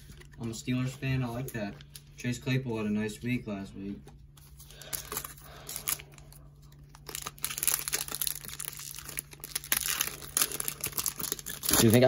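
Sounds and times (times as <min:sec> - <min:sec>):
foil wrapper tearing and crinkling: 0:04.8 - 0:12.0.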